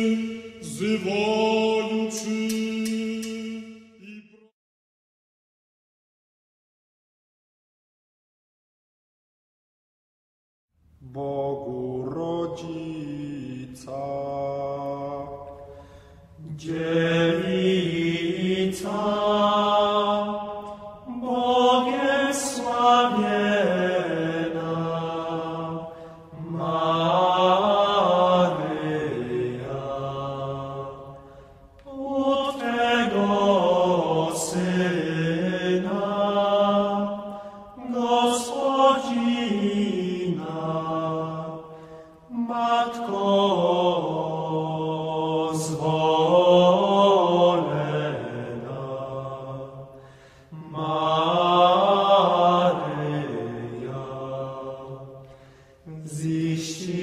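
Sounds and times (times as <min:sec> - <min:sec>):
man chanting: 0:00.0 - 0:04.5, 0:11.0 - 0:15.4.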